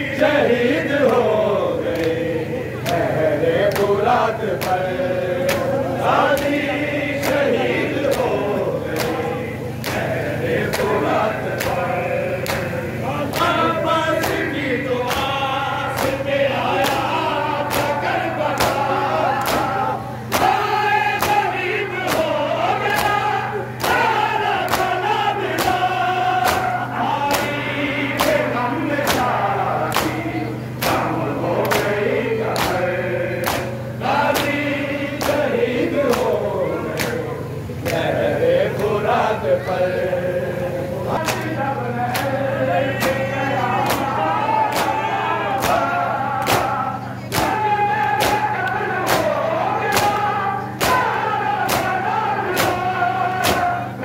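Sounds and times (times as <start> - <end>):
men chanting a lament: 0.0 - 54.0
chest-beating slaps: 21.2 - 21.4, 23.8 - 26.7, 27.3 - 27.6, 28.2 - 30.2, 30.8 - 34.6, 35.2 - 35.4, 42.1 - 42.4, 43.0 - 43.2, 43.8 - 44.1, 44.7 - 45.0, 45.6 - 49.3, 49.9 - 52.0, 52.6 - 52.8, 53.4 - 53.8.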